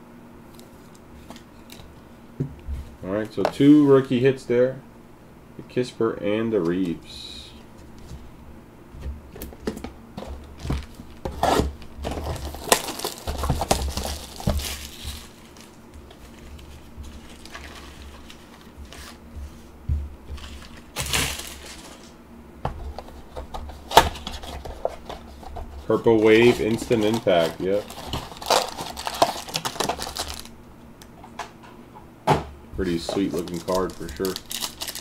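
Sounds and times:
trading cards handled: 0:22.9 - 0:30.5, 0:32.8 - 0:35.0.

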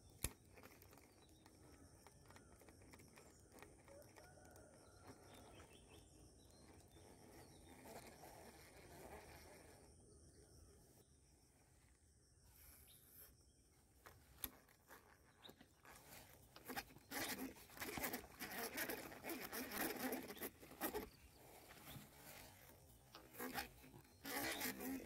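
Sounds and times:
fishing reel whirring: 0:14.4 - 0:25.0.

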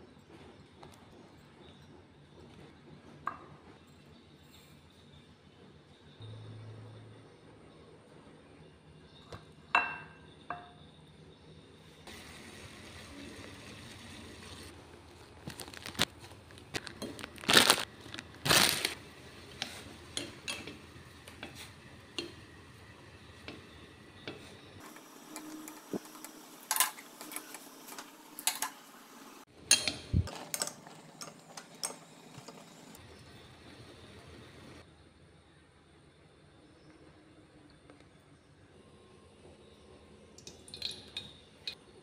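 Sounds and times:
utensils and dishes clinking: 0:18.5 - 0:22.4, 0:24.3 - 0:28.8, 0:29.6 - 0:33.0.

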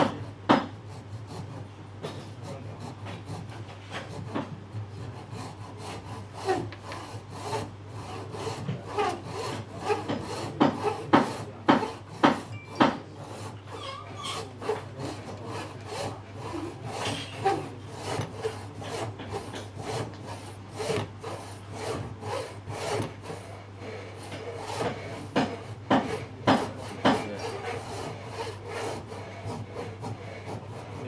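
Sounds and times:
saw cutting wood: 0:00.0 - 0:31.0.

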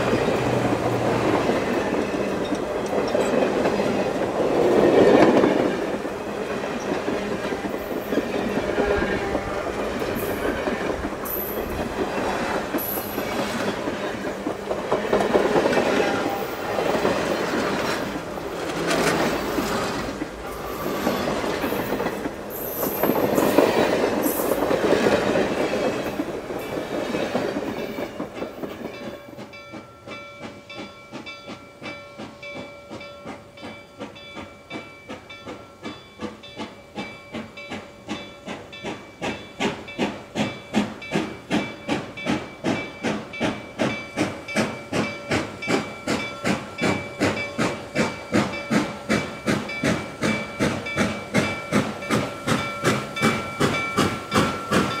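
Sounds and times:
train wheel clatter: 0:00.0 - 0:55.0
steam locomotive puffing: 0:30.4 - 0:55.0.

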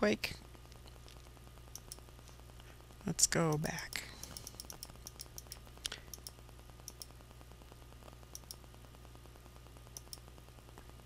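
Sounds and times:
low electrical hum: 0:00.0 - 0:11.0
computer mouse clicks: 0:01.1 - 0:02.0, 0:03.5 - 0:07.1, 0:08.3 - 0:08.6, 0:09.9 - 0:10.2.

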